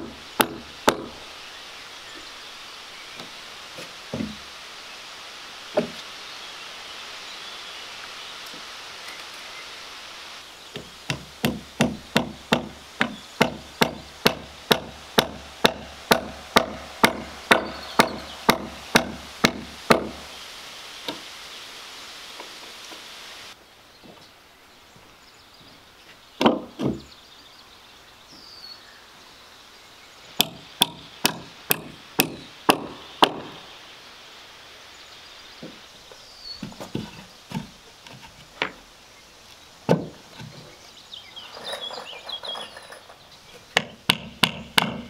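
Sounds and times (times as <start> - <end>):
hammer nailing into wood: 0.4 - 1.2, 11.1 - 20.2, 26.4 - 27.0, 30.4 - 33.6, 43.8 - 45.0
dull thuds: 3.8 - 4.4.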